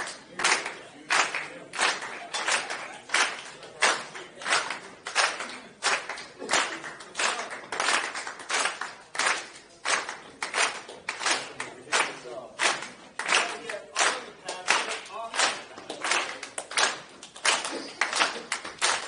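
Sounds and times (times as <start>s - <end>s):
hand clapping: 0.0s - 19.0s.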